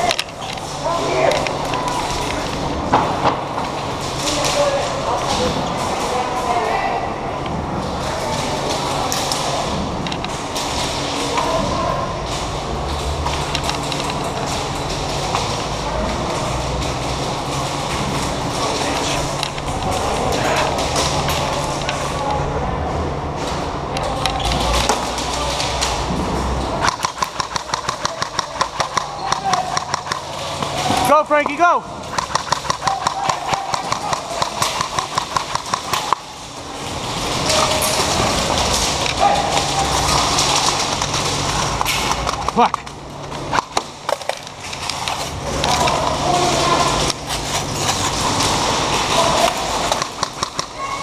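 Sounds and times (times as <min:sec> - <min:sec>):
steady rustling noise: 0:00.0 - 0:50.5
rapid airsoft gun fire: 0:26.8 - 0:31.0, 0:32.0 - 0:42.7, 0:48.2 - 0:51.0.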